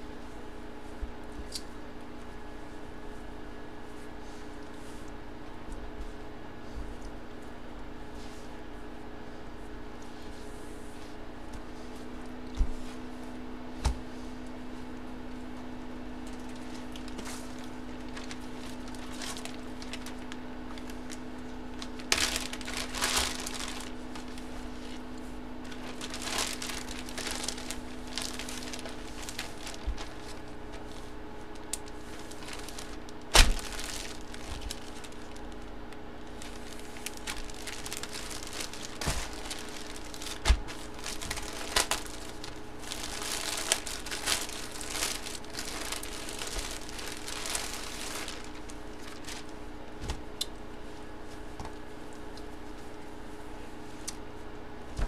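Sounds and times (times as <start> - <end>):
steady low hum: 0.0 - 55.0
plastic packaging crinkling: 16.2 - 49.6
handling noises: 16.2 - 50.3.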